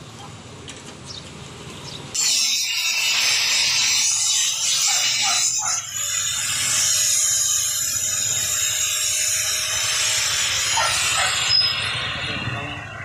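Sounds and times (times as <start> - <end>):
angle grinder cutting metal: 2.1 - 13.0.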